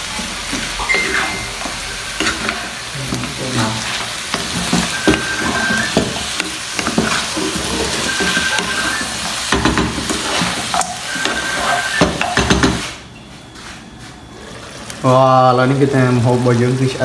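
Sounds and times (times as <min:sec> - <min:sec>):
chicken sizzling in a pan: 0:00.0 - 0:12.9
spatula scraping a pan: 0:01.0 - 0:13.0.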